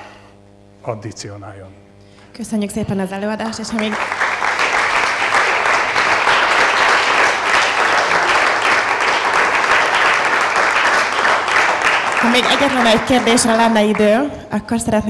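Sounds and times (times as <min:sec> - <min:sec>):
audience applauding: 0:03.7 - 0:14.3.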